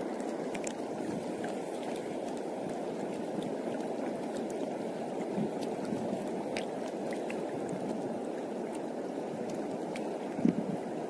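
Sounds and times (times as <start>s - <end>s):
sea water rushing over rocks: 0.0s - 11.0s.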